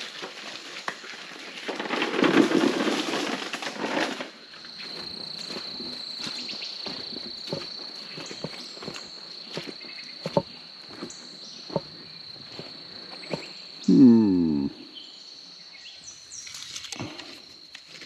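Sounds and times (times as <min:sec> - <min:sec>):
footsteps on damp forest ground: 0:03.9 - 0:13.9.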